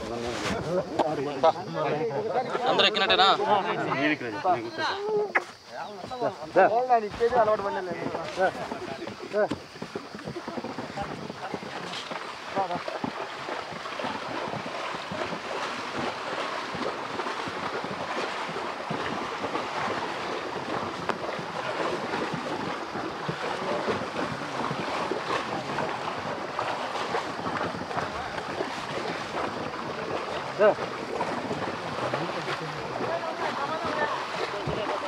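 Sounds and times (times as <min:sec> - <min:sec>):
water splashing and churning: 0:00.0 - 0:35.0
wind on microphone: 0:07.9 - 0:35.0.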